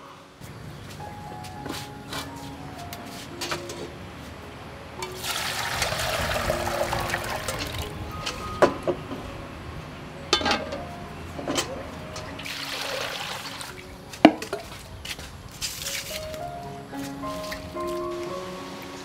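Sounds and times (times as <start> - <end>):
water pouring into metal pot: 5.2 - 7.9, 12.4 - 13.8
metal cookware clanking: 10.2 - 12.4.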